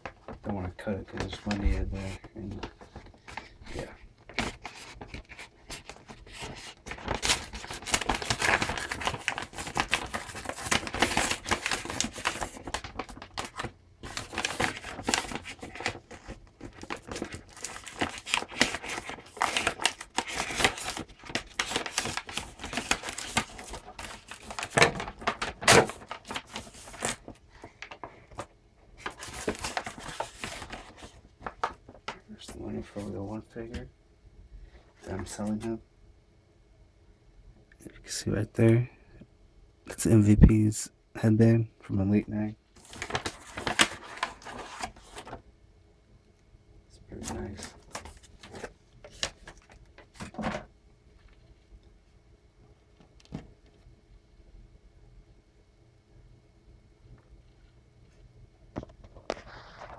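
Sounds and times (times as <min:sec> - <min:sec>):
paper envelope tearing and crinkling: 0:04.3 - 0:33.1, 0:42.8 - 0:45.4, 0:47.1 - 0:50.6.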